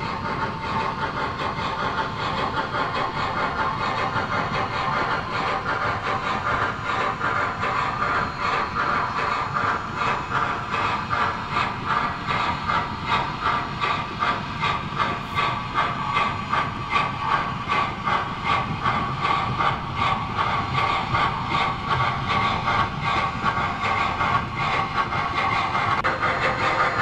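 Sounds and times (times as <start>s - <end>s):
model steam locomotive chuffing: 0.0s - 27.0s.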